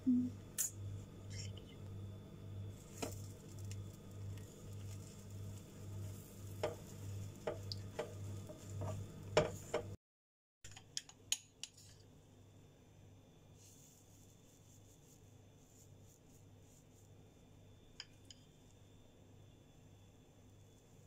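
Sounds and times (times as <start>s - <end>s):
spatula scraping frying pan: 4.8s - 9.9s.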